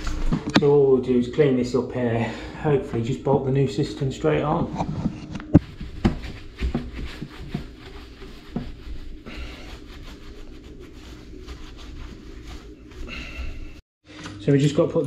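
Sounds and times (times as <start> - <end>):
cloth wiping ceramic: 5.6 - 13.8.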